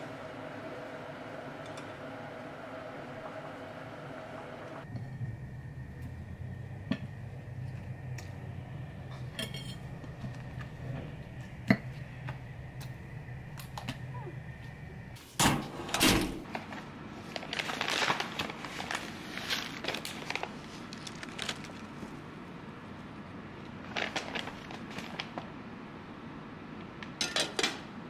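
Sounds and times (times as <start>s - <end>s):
low steady hum: 0.0s - 28.0s
paper packet crinkling: 16.5s - 22.2s, 23.8s - 25.5s.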